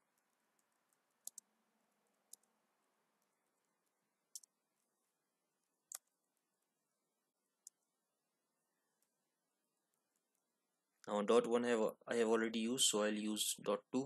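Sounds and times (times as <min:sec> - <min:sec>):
computer keyboard keystrokes: 0:01.2 - 0:01.5.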